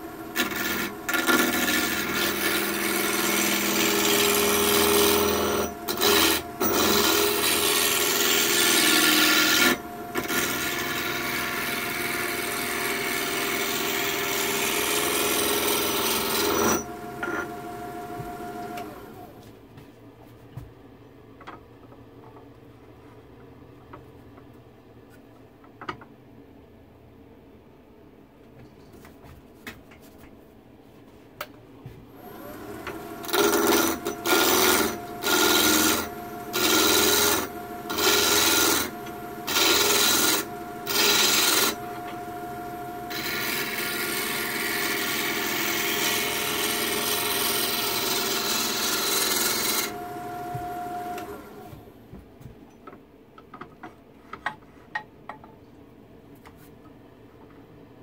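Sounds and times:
wood lathe motor humming: 0.0s - 19.3s, 32.2s - 51.8s.

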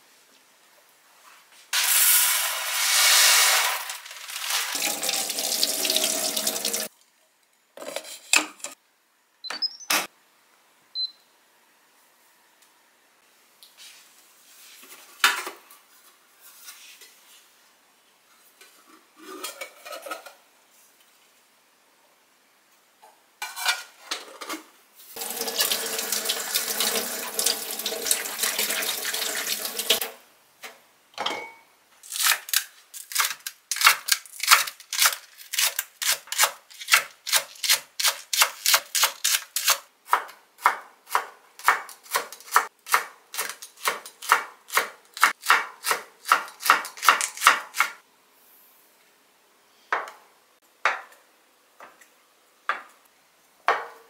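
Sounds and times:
tap running water: 3.7s - 6.9s, 25.2s - 30.1s
kitchen clinks: 31.2s - 31.7s.

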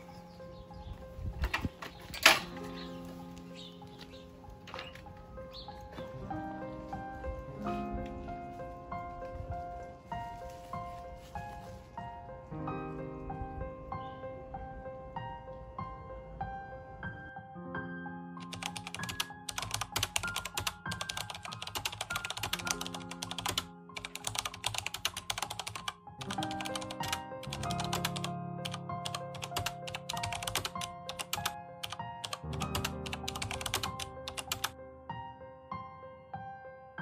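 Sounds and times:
slow piano music: 0.0s - 37.0s
computer keyboard typing: 18.4s - 34.8s.

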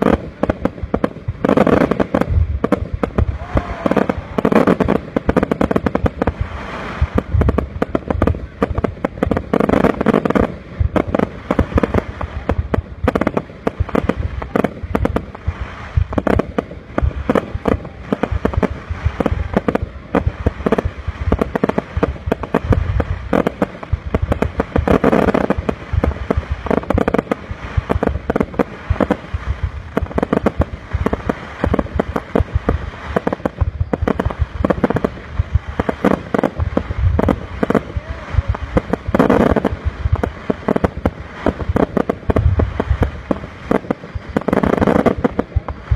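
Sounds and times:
fireworks bursting: 0.0s - 45.9s.

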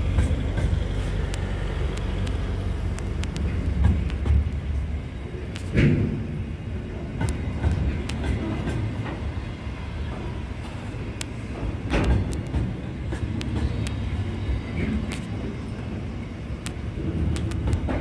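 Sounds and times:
wheel clicks and clanks on rails: 0.0s - 15.6s, 16.6s - 18.0s
freight train rumbling: 0.0s - 18.0s.

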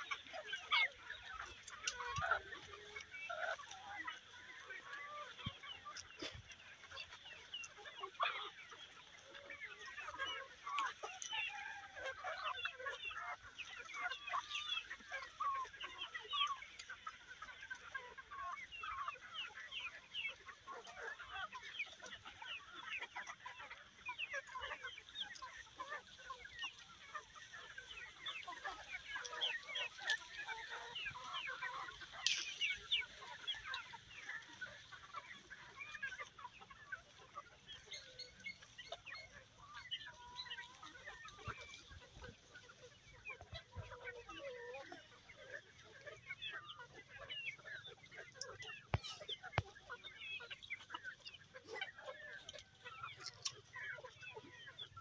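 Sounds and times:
chickens clucking: 0.0s - 55.0s.

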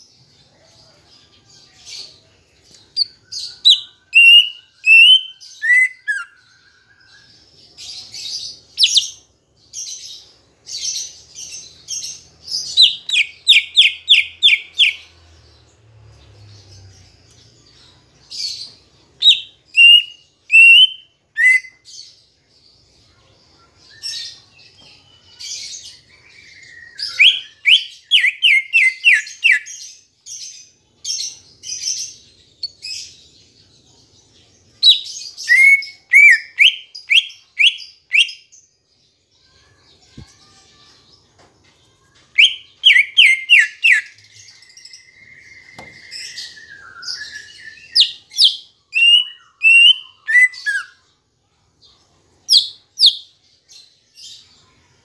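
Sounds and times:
bird singing chips and whistles: 19.3s - 21.8s, 34.9s - 38.4s, 42.4s - 50.9s.

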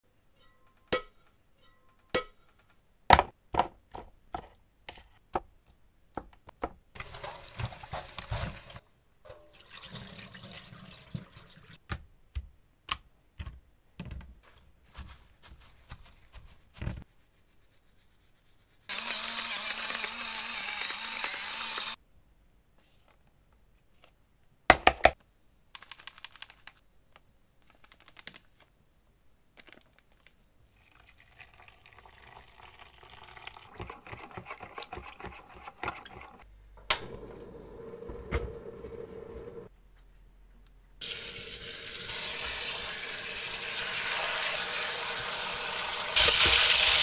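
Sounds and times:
kitchen knocks and clatters: 6.2s - 9.5s
electric pepper grinder whirring: 18.9s - 22.0s, 42.1s - 47.0s.

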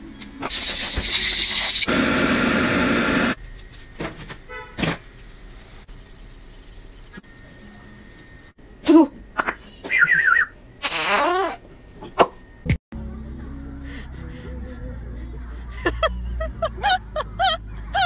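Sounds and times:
blow dryer rushing air: 1.8s - 3.4s.

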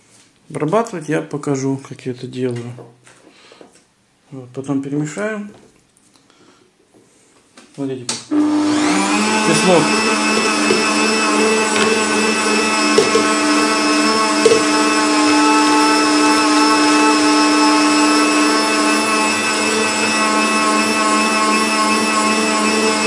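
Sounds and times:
electric meat grinder humming: 8.3s - 23.0s.

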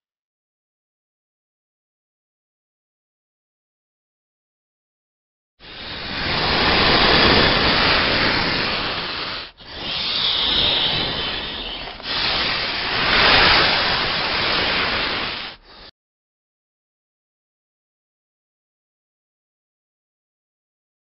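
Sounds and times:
snake hissing: 5.6s - 15.9s.

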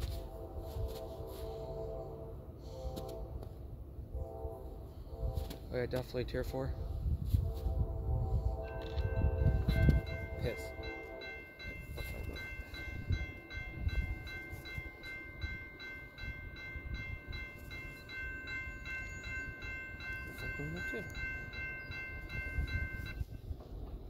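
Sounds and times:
freight train wheels rumbling: 0.0s - 24.0s
bell dinging: 8.7s - 23.3s.

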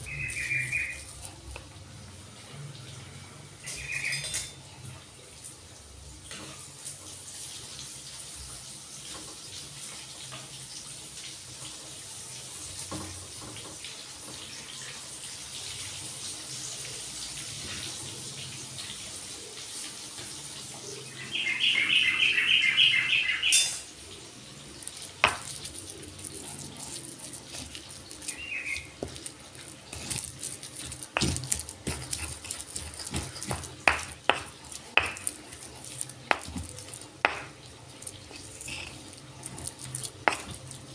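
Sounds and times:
rapid high chirping: 0.0s - 1.1s, 27.8s - 29.3s
stone pestle knocking in mortar: 24.9s - 25.7s, 29.9s - 40.7s.

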